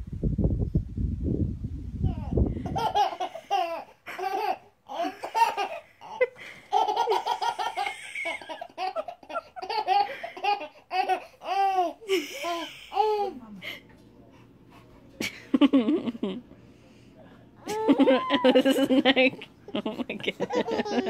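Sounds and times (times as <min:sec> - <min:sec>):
baby laughing: 0:02.1 - 0:13.3, 0:17.7 - 0:21.0.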